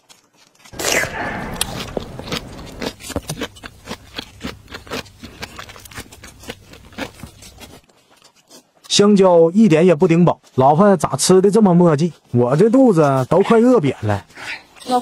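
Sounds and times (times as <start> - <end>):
noodles slurped and chewed: 0.0 - 8.9.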